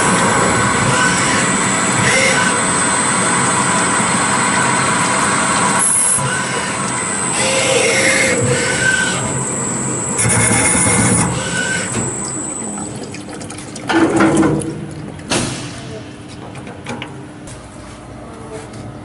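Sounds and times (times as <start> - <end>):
lathe running: 0.0 - 12.8
thin high steady whine: 0.0 - 13.1
coolant splashing: 12.2 - 15.8.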